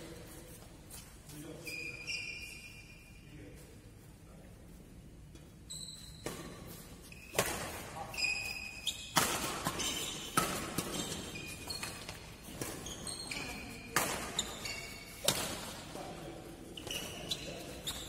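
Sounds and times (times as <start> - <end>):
shoes squeaking on court: 0.0 - 3.8, 5.3 - 18.0
rackets hitting shuttlecock: 6.2 - 16.2.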